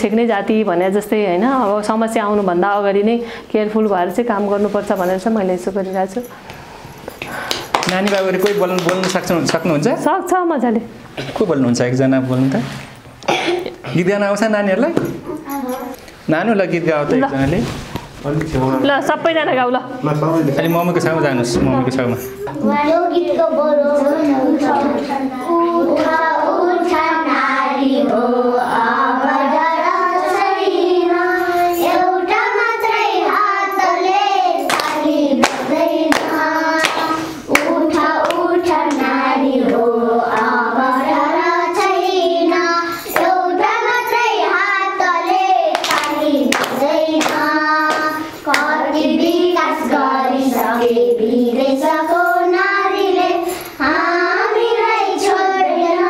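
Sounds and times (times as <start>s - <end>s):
hand claps: 7.1s - 9.7s, 34.6s - 39.1s, 43.1s - 43.3s, 45.7s - 48.8s
girls singing in unison: 22.5s - 56.0s.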